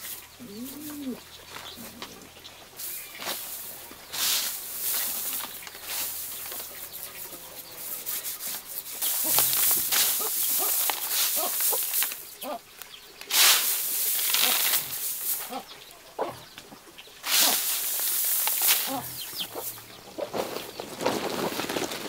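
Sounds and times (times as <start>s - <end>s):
rice falling onto plastic tarp: 2.8s - 6.8s, 8.1s - 12.4s, 13.2s - 15.7s, 17.2s - 19.2s, 20.2s - 22.0s.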